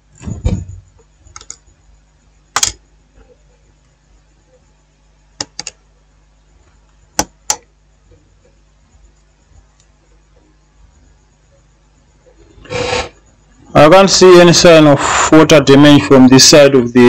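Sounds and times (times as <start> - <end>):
small sharp clicks and taps: 7.2 - 8.2.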